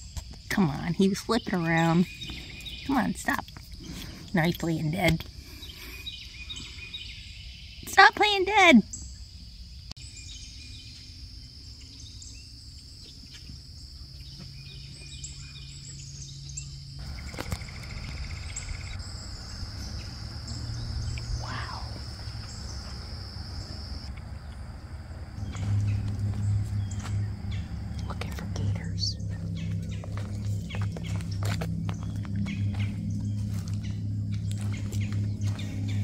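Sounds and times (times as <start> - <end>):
bird chirps: 1.2 - 4.5, 5.5 - 8.0, 8.9 - 24.6, 25.4 - 36.0
low rumble: 14.6 - 36.0
high-pitched drone: 16.0 - 36.0.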